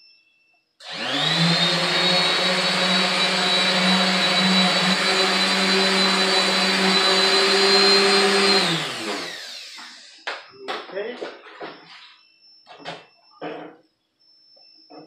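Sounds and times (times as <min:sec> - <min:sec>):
electric car buffer whining: 0:00.8 - 0:10.2.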